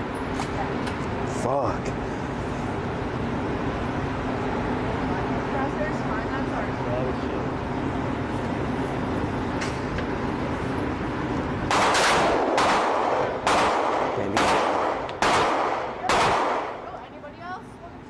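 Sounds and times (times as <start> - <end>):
steady background hum: 0.0 - 18.0
gunshots with echo: 11.7 - 16.8.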